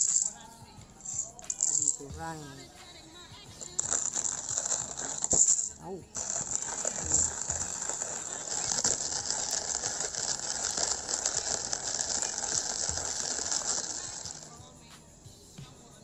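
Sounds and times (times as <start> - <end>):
coffee grinder crunching beans: 0.0 - 0.4, 1.0 - 2.1, 3.6 - 14.6.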